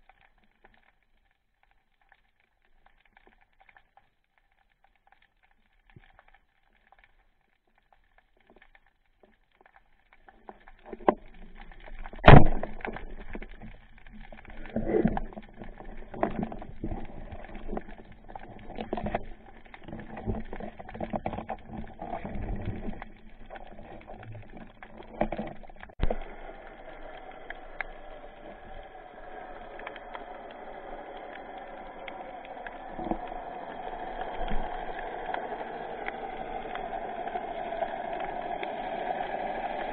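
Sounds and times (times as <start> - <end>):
water rushing: 10.3 - 39.9
underwater speargun crack: 12.0 - 15.2.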